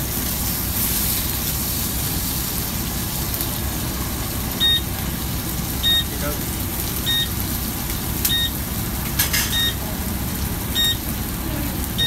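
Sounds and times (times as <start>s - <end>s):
chicken sizzling in oil: 0.0s - 12.0s
gas burner rumble: 0.0s - 12.0s
short high electronic beep: 4.6s - 4.8s, 5.9s - 6.1s, 10.8s - 11.0s.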